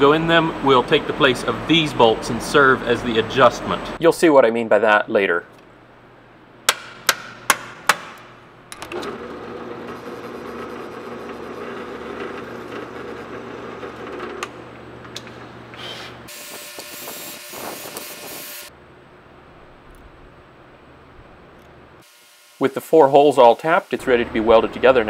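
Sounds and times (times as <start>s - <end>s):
drill press drilling steel: 8.9s - 14.6s.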